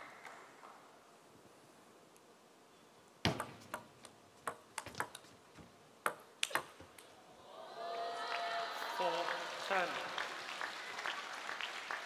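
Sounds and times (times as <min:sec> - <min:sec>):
table tennis ball clicking: 0:03.3 - 0:05.3, 0:06.0 - 0:07.1.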